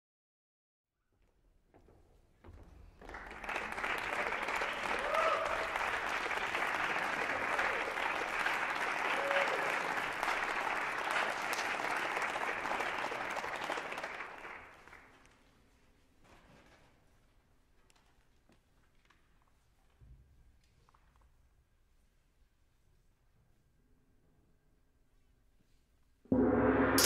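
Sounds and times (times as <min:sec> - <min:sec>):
audience applauding: 0:03.0 - 0:15.3.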